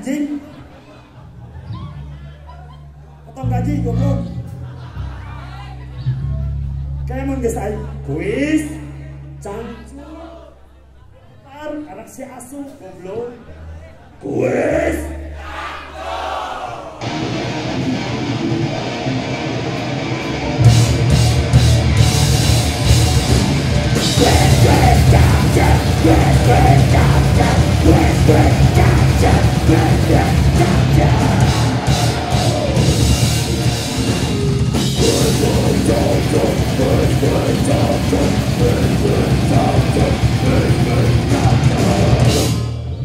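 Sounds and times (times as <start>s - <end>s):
vocals: 0.0s - 1.2s, 2.6s - 17.0s, 23.9s - 43.0s
grindcore band playing: 17.0s - 43.0s.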